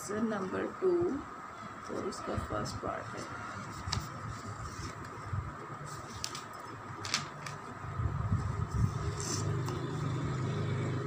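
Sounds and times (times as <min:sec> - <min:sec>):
low mechanical hum: 0:00.0 - 0:11.0
notebook and pen rustling: 0:01.8 - 0:07.8, 0:08.4 - 0:10.1.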